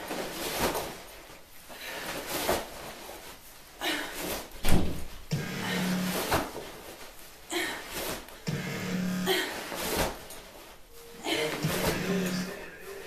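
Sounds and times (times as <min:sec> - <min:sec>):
sandbag swishing and thudding: 0:00.0 - 0:03.6, 0:09.5 - 0:12.5.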